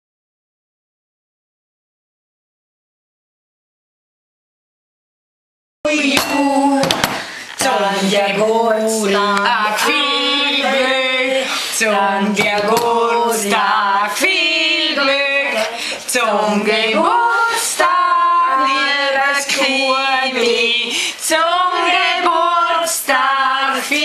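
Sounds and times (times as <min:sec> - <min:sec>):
people singing: 0:05.9 - 0:24.0
woman singing long notes: 0:05.9 - 0:24.0.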